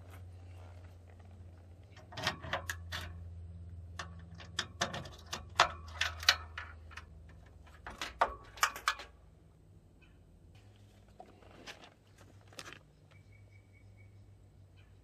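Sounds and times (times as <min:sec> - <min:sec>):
steady low hum: 0:00.0 - 0:15.0
metal access door clicking and rattling: 0:01.9 - 0:03.2, 0:03.9 - 0:09.2.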